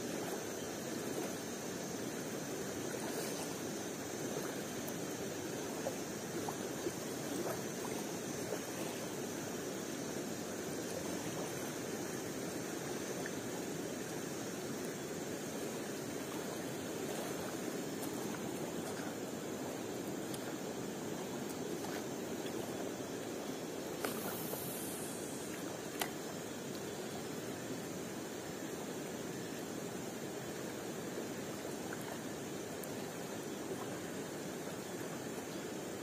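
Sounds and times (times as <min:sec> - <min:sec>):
stream flowing: 0:00.0 - 0:36.0
faint ticks: 0:20.0 - 0:20.7, 0:24.0 - 0:26.9, 0:31.9 - 0:33.1.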